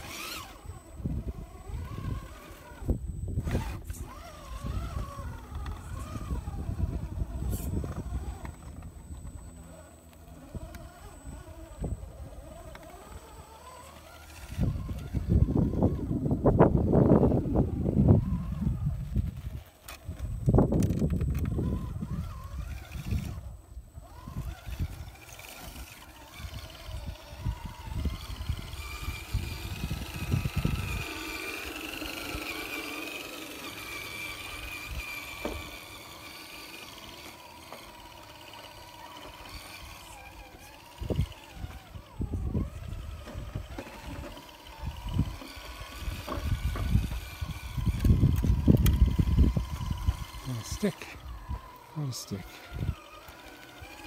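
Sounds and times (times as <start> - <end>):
electric motor whine: 0.0 - 54.0
low rumbles and crunches: 14.0 - 32.3, 39.5 - 51.8.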